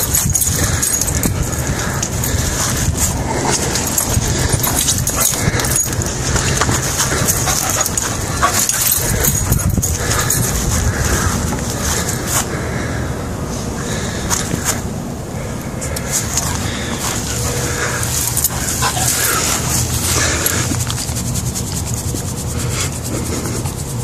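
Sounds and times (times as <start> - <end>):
dog vocalizing during play: 0.0 - 12.2, 16.4 - 24.0
rushing and rustling handling noise: 0.0 - 12.5, 15.9 - 24.0.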